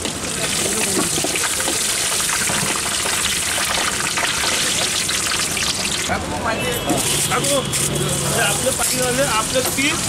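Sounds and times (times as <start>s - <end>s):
peanuts sizzling in hot oil: 0.0s - 6.1s.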